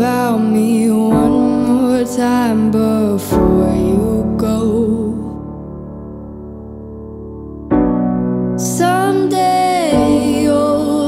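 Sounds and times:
person singing: 0:00.0 - 0:05.7, 0:08.6 - 0:11.0.

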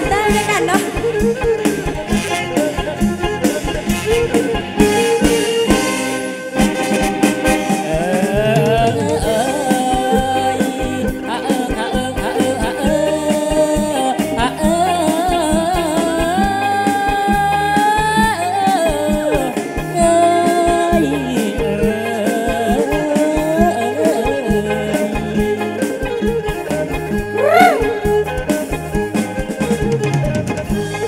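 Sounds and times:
drum kit: 0:00.0 - 0:31.0
electric bass: 0:00.0 - 0:31.0
man singing: 0:07.7 - 0:16.4, 0:19.3 - 0:26.2, 0:27.3 - 0:28.0.

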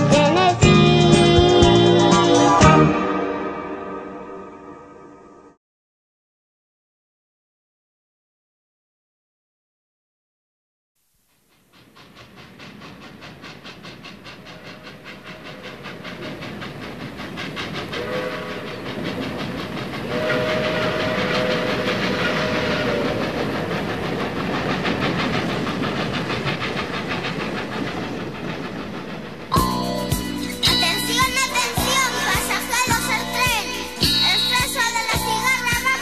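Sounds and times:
steam locomotive chuffing: 0:00.0 - 0:03.4, 0:11.3 - 0:36.0
steam whistle: 0:17.9 - 0:18.8, 0:20.1 - 0:23.4.

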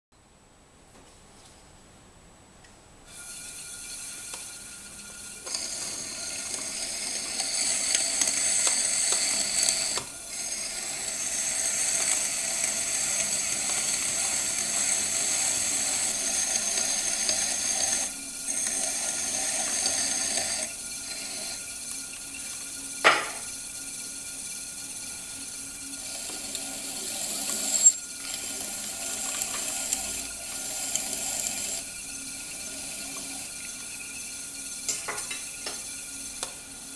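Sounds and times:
potter's wheel humming: 0:03.1 - 0:36.9
tool scraping clay: 0:03.9 - 0:21.6, 0:26.0 - 0:31.9.

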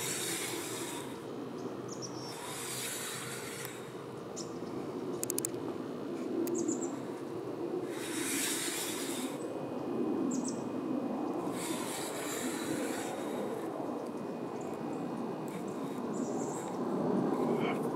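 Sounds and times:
swells of hiss: 0:00.0 - 0:01.2, 0:02.2 - 0:04.0, 0:06.8 - 0:09.5, 0:11.4 - 0:13.8
low outdoor background: 0:00.0 - 0:17.9.

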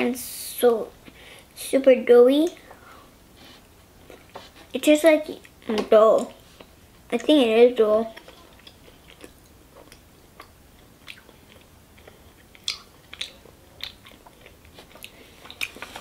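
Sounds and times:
child chewing: 0:02.6 - 0:16.0
mouth clicks and smacks: 0:08.1 - 0:15.8.

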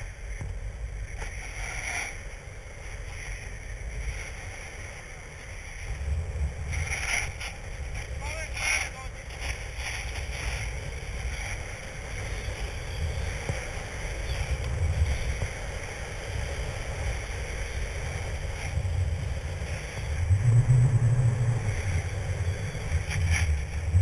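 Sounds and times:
snowboard sliding on snow: 0:00.0 - 0:24.0
wind rumbling on microphone: 0:00.0 - 0:24.0.

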